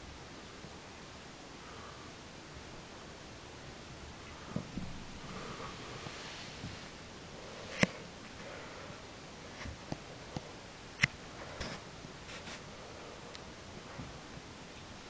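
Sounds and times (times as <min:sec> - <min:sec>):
dog snuffling: 0:11.4 - 0:14.1.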